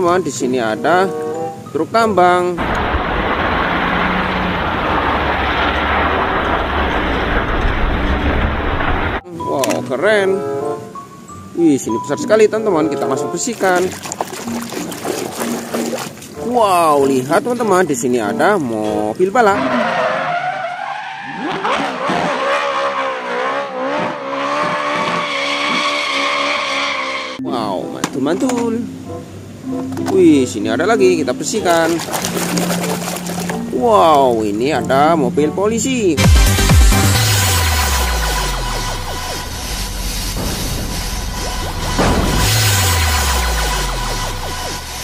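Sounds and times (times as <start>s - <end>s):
dump truck engine rumble: 2.6s - 9.3s, 36.2s - 45.0s
tyres squealing: 19.4s - 23.2s, 24.0s - 27.4s.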